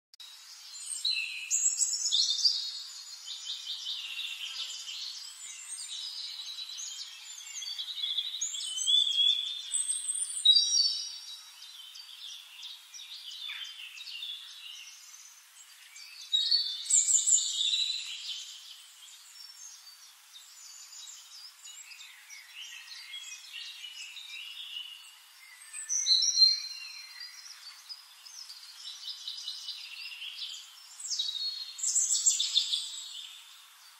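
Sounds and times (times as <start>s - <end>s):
birds chirping and singing: 0.3s - 33.9s.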